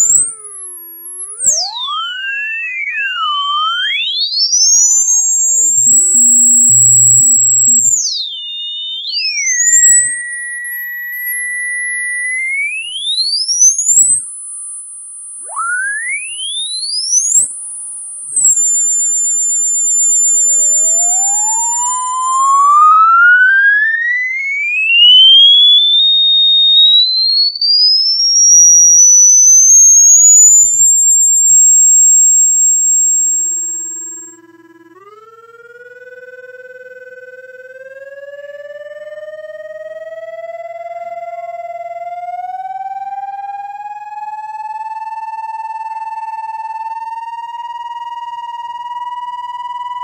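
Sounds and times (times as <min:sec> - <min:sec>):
electronic whistling tones: 0:00.0 - 0:50.0.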